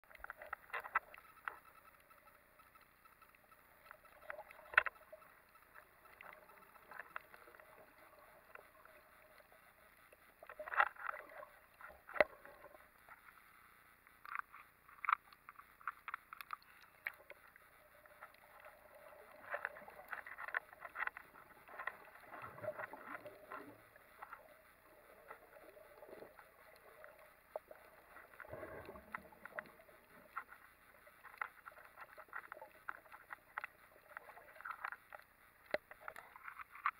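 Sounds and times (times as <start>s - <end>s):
underwater clicks and crackles: 0.0s - 36.9s
low hiss: 0.1s - 36.9s
muffled water swells: 15.7s - 36.8s.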